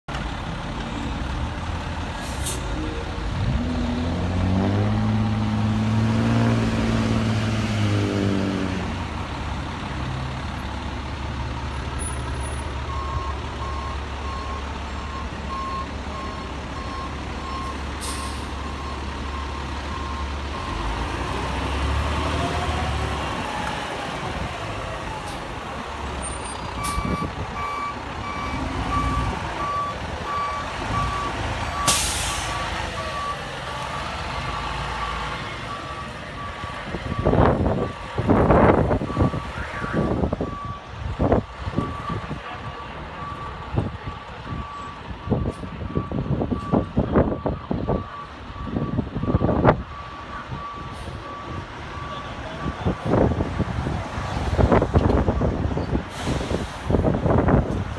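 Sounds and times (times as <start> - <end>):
air brake hisses: 31.9 - 32.6, 56.1 - 57.0.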